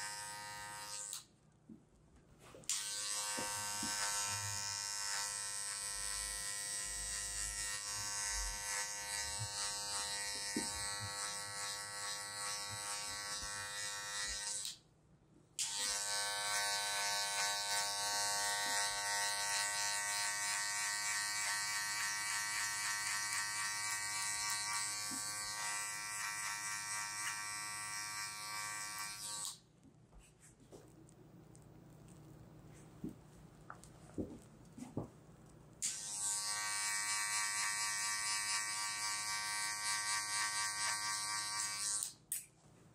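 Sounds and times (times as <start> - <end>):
electric hair clippers buzzing: 0.0 - 1.3, 2.7 - 14.8, 15.6 - 29.6, 35.8 - 42.2.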